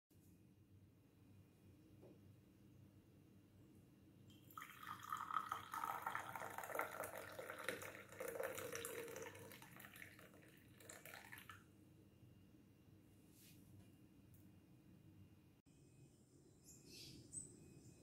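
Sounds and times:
liquid pouring into teacup: 4.3s - 11.6s.

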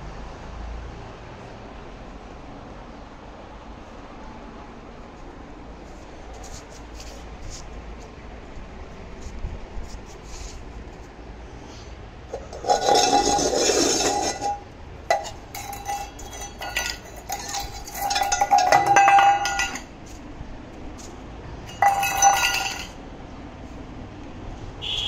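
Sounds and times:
metal dog bowl clinking and scraping: 12.3s - 19.9s, 21.6s - 23.0s.

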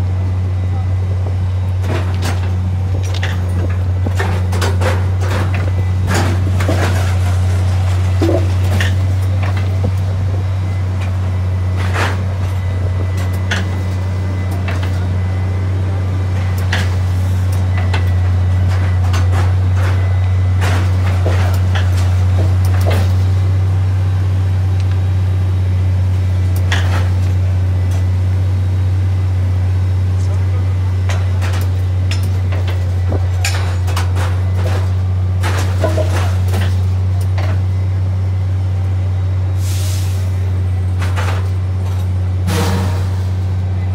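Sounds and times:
machine low drone: 0.0s - 43.9s.

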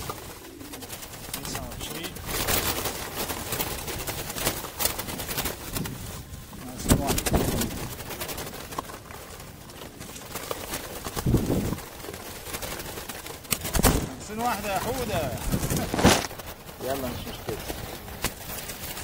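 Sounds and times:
doves flapping wings: 0.0s - 19.0s
sharp wing clatters: 0.0s - 19.0s.

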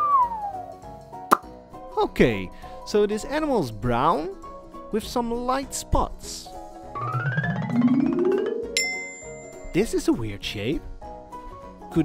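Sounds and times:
background music: 0.0s - 12.0s
rising pitch tone: 6.9s - 9.4s
bright ding: 8.8s - 9.8s.

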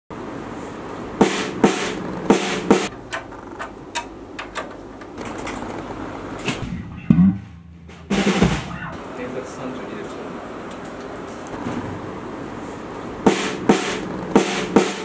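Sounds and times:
low room hum: 0.2s - 14.4s
snare drum hits: 1.2s - 2.9s, 7.9s - 8.8s, 13.3s - 15.0s.

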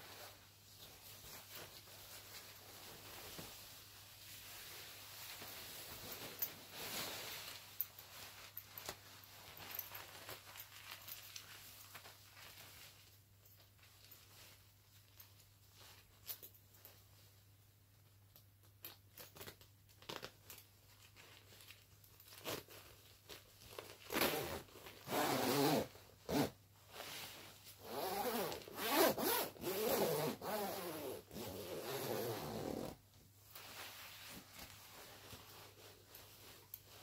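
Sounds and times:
zip clicks and rustles: 23.7s - 26.6s, 27.8s - 33.0s.

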